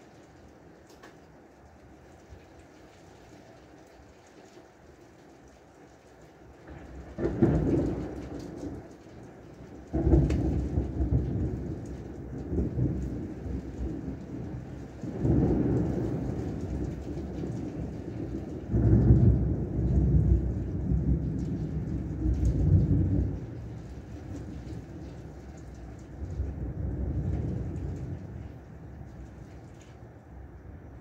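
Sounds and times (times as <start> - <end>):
deep thunder rumbles: 6.6 - 31.0.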